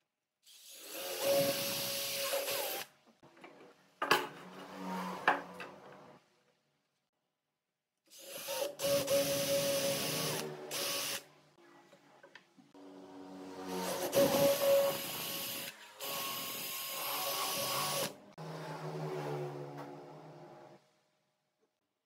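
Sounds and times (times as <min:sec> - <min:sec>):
cordless drill whining: 0:13.9 - 0:18.1.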